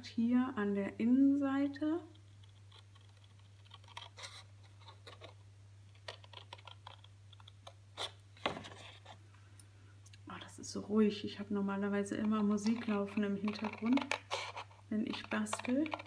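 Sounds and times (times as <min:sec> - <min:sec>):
scissors snipping paper: 0:12.2 - 0:16.0.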